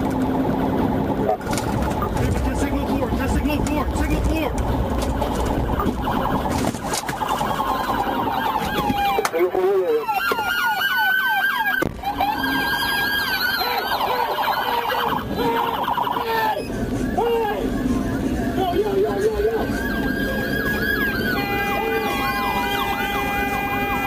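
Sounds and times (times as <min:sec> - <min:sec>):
police siren wail and yelp: 0:05.0 - 0:24.0.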